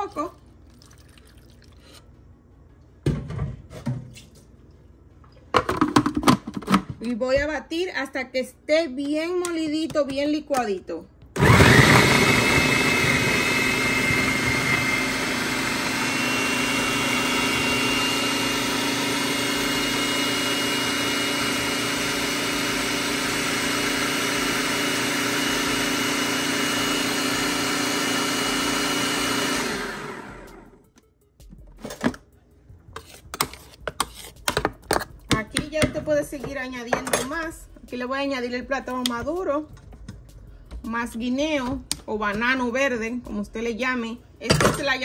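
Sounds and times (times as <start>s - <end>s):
food processor motor whining: 11.4s - 30.8s.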